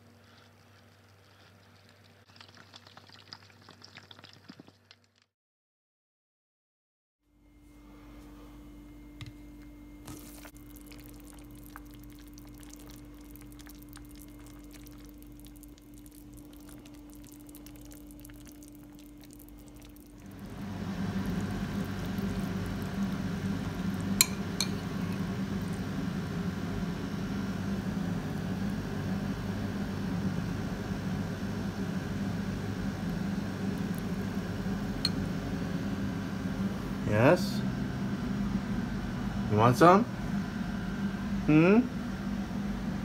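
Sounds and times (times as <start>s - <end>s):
soup simmering crackle: 0.0s - 5.3s, 10.1s - 35.5s
steady low hum: 7.3s - 43.0s
metal spoon clinking on pot: 24.2s - 24.9s.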